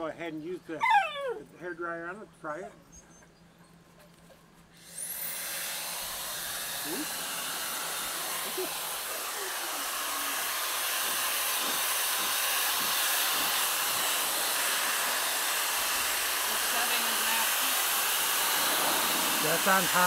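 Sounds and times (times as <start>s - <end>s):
dryer motor whine: 4.8s - 20.0s
pet dryer blowing: 4.8s - 20.0s.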